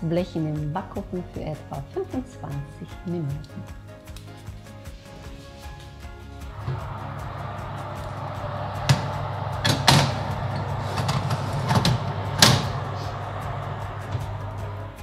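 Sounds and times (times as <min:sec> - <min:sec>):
steady low hum: 0:06.4 - 0:15.0
oven door shutting: 0:06.6 - 0:15.0
baking tray knocks and clatters: 0:08.2 - 0:12.9.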